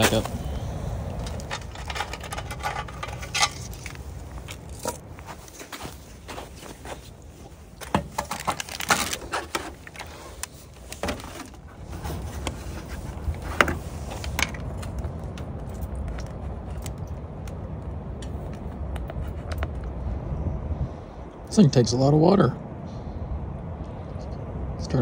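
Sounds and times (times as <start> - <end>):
metal clinks and knocks: 1.1 - 5.3.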